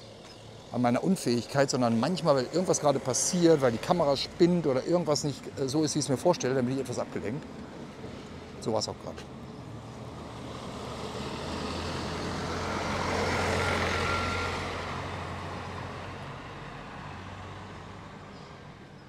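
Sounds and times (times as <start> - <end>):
vehicle driving past: 9.8 - 18.8.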